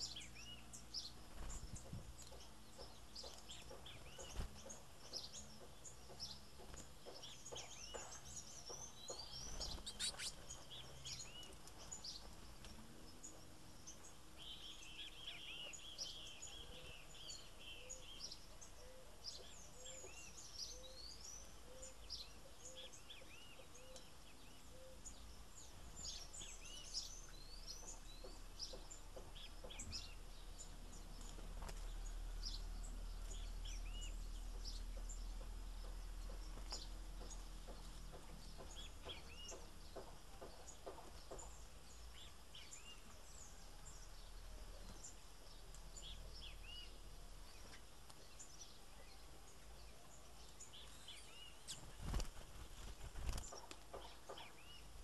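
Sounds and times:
small birds chirping: 0.0 - 55.0
bird trill: 2.3 - 12.1.

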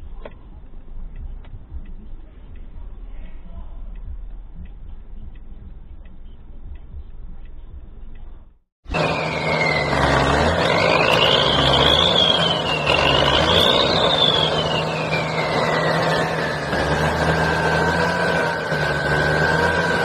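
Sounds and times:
vehicle engine drone: 0.0 - 20.0
high whine: 8.9 - 20.0.

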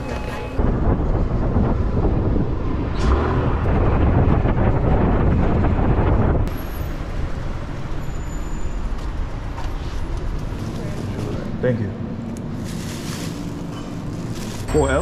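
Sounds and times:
street ambience: 0.0 - 15.0
wind on microphone: 0.5 - 6.5.

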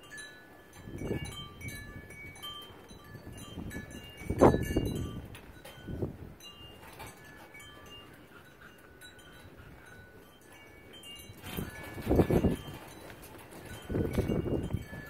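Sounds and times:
wind chimes tinkling: 0.0 - 15.0
dogs wrestling playfully: 6.8 - 13.8.

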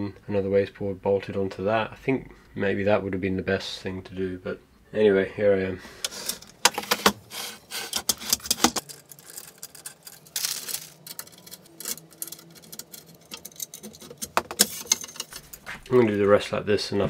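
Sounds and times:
plastic bag rustling: 6.2 - 16.1
small metal screws clattering: 7.8 - 15.6.

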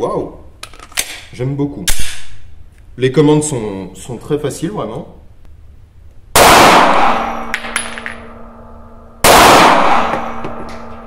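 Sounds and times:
pistol shots echoing: 6.4 - 8.3, 9.2 - 11.0.

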